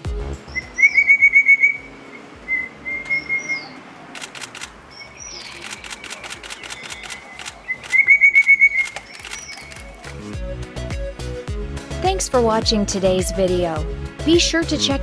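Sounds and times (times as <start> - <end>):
bird calling sharp notes: 0.0 - 10.4
faint clicks: 4.1 - 4.8, 5.4 - 10.2.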